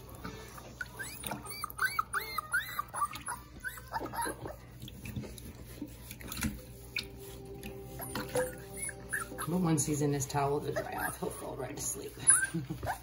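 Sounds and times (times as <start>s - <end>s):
puppy whining: 0.1s - 4.8s, 7.7s - 13.0s.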